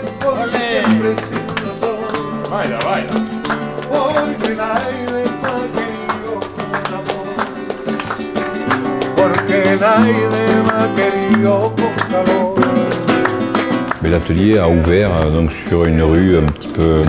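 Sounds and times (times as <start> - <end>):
person singing: 0.0 - 13.3
flamenco acoustic guitar strumming: 0.0 - 17.0.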